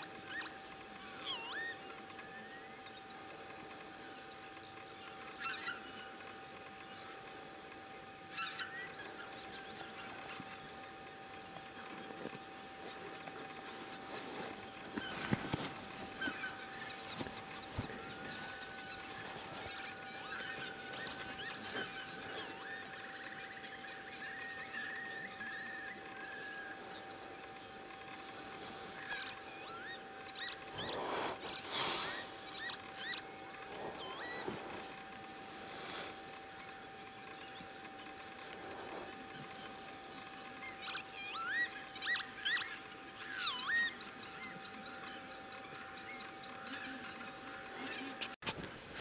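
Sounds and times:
faint steady hum: 0:00.0 - 0:49.0
geese calling: 0:00.0 - 0:49.0.

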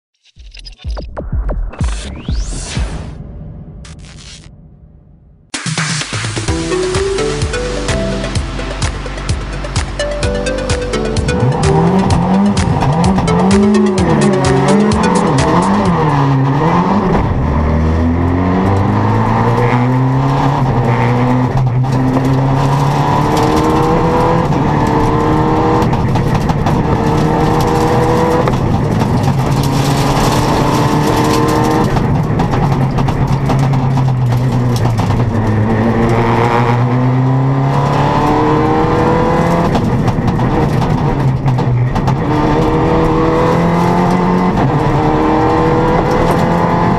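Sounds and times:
rally car engine revving: 0:11.0 - 0:46.9.

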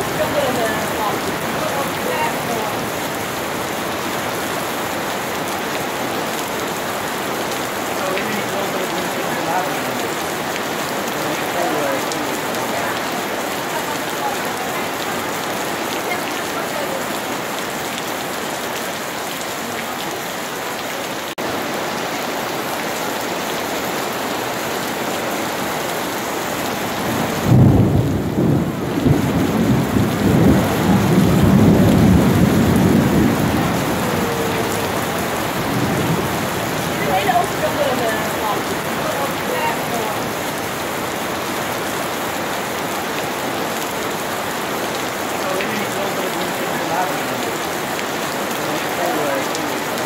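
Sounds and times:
rain on paving and water: 0:00.0 - 0:50.0
thunder rumbling: 0:26.7 - 0:41.8.

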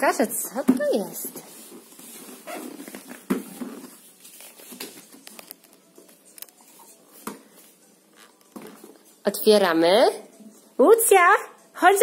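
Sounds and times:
cardboard rustling: 0:01.3 - 0:06.1.

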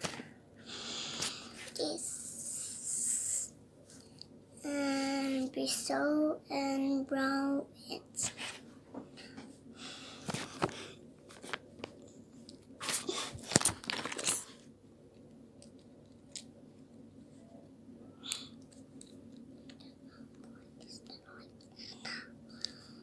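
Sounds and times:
plastic packet crinkling: 0:12.9 - 0:14.6.

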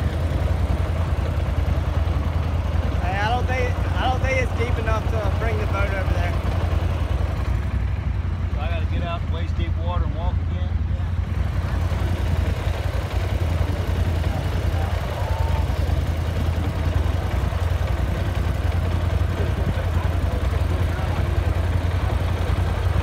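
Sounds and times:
vehicle engine running: 0:00.0 - 0:23.0.

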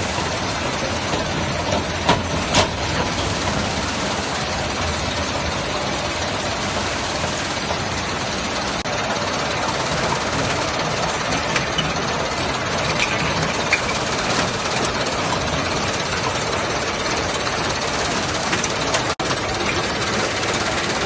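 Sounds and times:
bottling machine clatter and hum: 0:00.0 - 0:21.0.

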